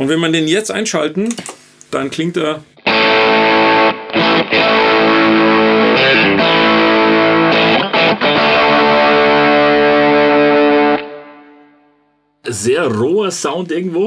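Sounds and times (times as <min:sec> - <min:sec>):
fuzz electric guitar chords: 0:02.8 - 0:12.1.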